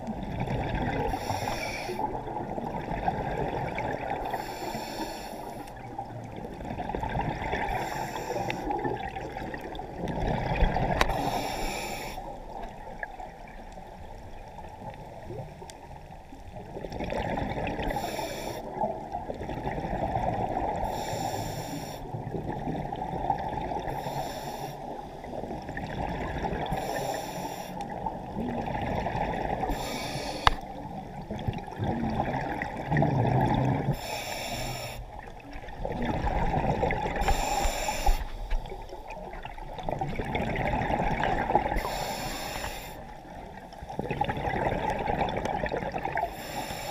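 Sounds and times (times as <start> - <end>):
exhaled bubbles rumbling: 0.0 - 4.5, 5.7 - 11.6, 12.2 - 21.0, 22.1 - 24.1, 24.9 - 27.0, 27.8 - 34.1, 35.0 - 42.1, 43.0 - 46.4
regulator inhalation hiss: 1.2 - 2.1, 4.3 - 5.7, 7.8 - 8.7, 11.1 - 12.3, 17.9 - 18.7, 20.9 - 22.2, 23.9 - 25.0, 26.7 - 27.8, 29.7 - 30.6, 34.0 - 35.1, 37.2 - 38.6, 41.8 - 43.2, 46.3 - 46.9.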